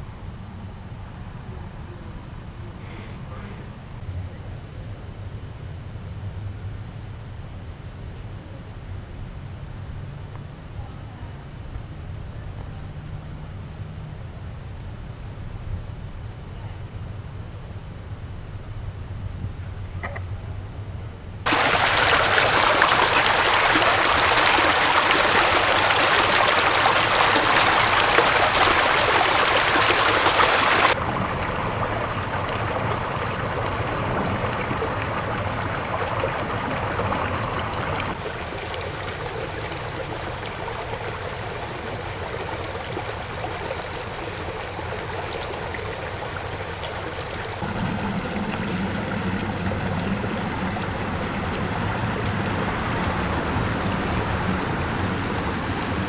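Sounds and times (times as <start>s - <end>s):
stream water rushing: 21.5s - 56.0s.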